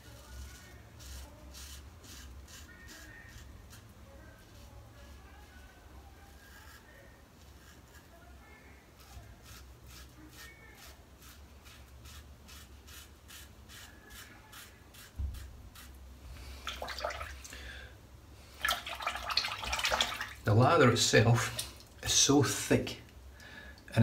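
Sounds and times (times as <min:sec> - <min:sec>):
razor scraping stubble: 0:00.0 - 0:05.2, 0:09.0 - 0:16.0.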